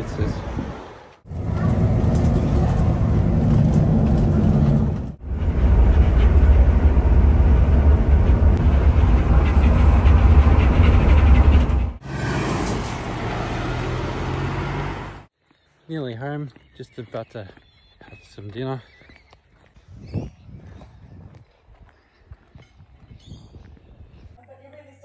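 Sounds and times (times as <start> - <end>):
tyres on road: 0.0 - 19.4
coach engine rumble: 1.3 - 13.2.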